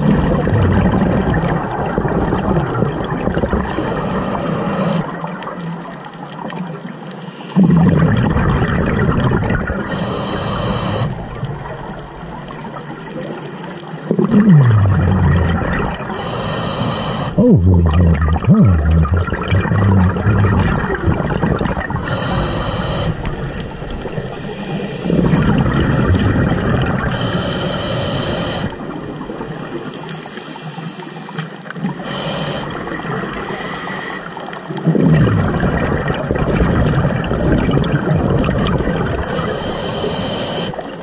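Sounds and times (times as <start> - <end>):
exhaled bubbles gurgling: 0.0 - 41.0
regulator hissing inhalations: 3.6 - 5.1, 9.8 - 11.3, 16.1 - 17.5, 22.0 - 26.4, 27.1 - 28.8, 29.9 - 34.4, 39.2 - 41.0.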